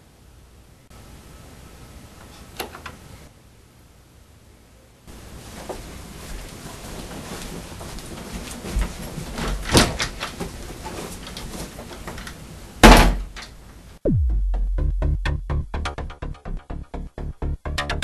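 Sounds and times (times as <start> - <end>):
door slamming: 12.8 - 13.3
electronic dance music: 14.1 - 18.0.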